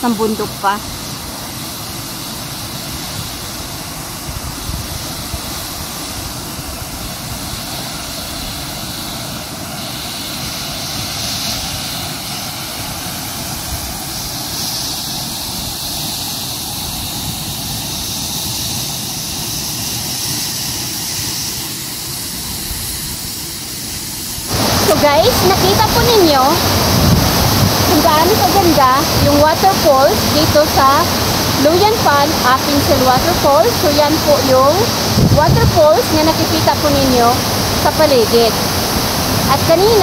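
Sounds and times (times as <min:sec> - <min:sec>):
waterfall roaring: 0:00.0 - 0:14.8, 0:23.3 - 0:40.0.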